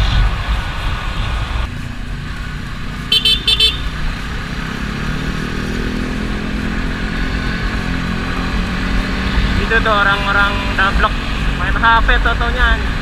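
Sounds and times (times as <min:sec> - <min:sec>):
wind rumble: 0:00.0 - 0:13.0
motorcycle engine running: 0:01.6 - 0:13.0
horn tooting: 0:03.1 - 0:04.1.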